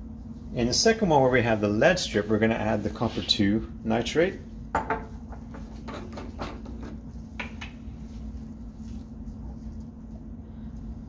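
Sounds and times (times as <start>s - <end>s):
low hum: 6.6s - 11.0s.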